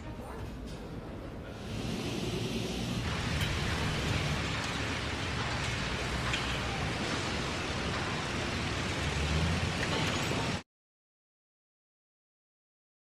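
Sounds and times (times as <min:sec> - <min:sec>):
steady rushing noise: 0:01.5 - 0:10.6.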